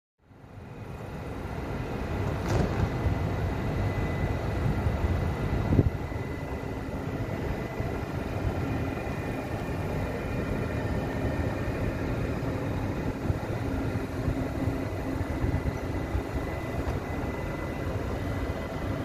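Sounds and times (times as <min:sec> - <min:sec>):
diesel railcar idling: 0:00.2 - 0:19.0
faint steady whine: 0:00.2 - 0:19.0.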